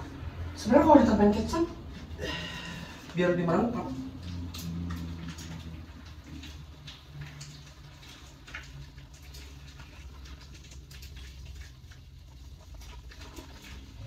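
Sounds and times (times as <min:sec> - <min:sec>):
faint low hum: 0:00.0 - 0:14.0
clicks and rustling of handled objects: 0:04.2 - 0:14.0.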